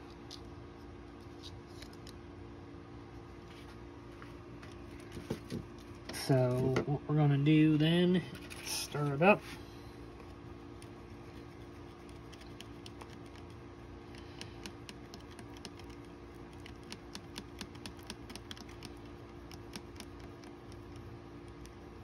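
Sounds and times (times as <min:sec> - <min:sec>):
stick tapping while stirring: 0:11.8 - 0:13.6, 0:14.2 - 0:21.8.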